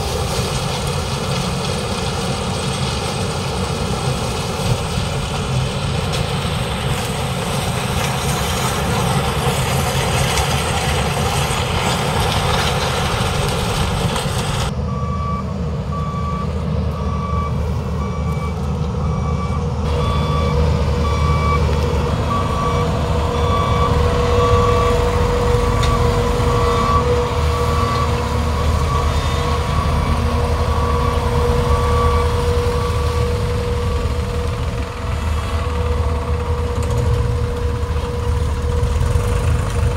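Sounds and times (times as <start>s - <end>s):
harvester engine and cutting gear: 0.0s - 39.9s
tractor engine: 0.0s - 39.9s
steady whine: 13.4s - 39.9s
reversing alarm beeping: 14.8s - 39.0s.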